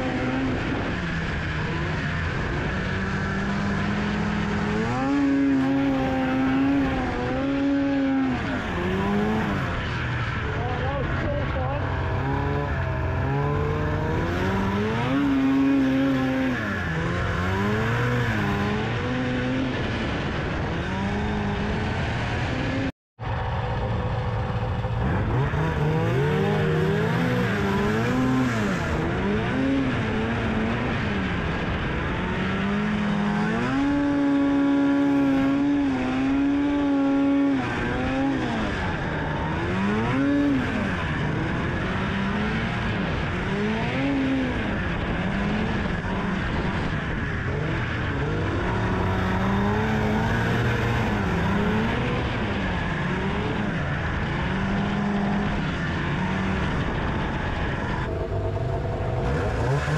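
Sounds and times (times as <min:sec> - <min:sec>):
snowmobile engine revving: 0:00.0 - 0:59.9
steady rush of noise: 0:38.6 - 0:59.9.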